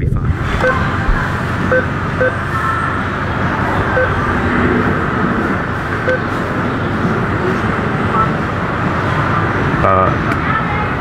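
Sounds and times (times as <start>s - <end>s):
rushing background noise: 0.0s - 11.0s.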